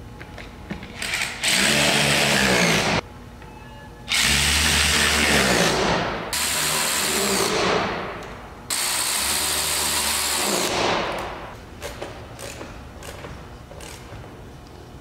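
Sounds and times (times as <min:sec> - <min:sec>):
power drill running: 0:08.7 - 0:10.8.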